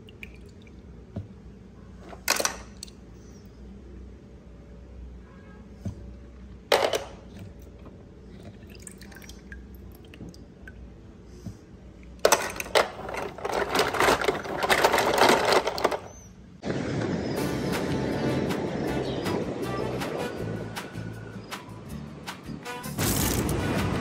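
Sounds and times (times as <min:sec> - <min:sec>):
water splashing and dripping: 0:00.0 - 0:00.9, 0:07.6 - 0:10.9
music: 0:17.1 - 0:24.0.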